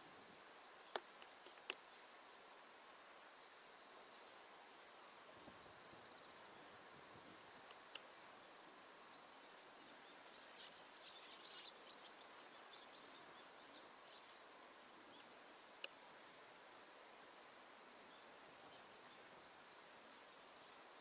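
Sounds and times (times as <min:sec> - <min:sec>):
steady hiss: 0:00.0 - 0:21.0
faint high-pitched ticks: 0:00.3 - 0:02.6, 0:05.4 - 0:21.0
faint clicks: 0:00.9 - 0:01.9, 0:07.6 - 0:08.1, 0:15.4 - 0:16.0.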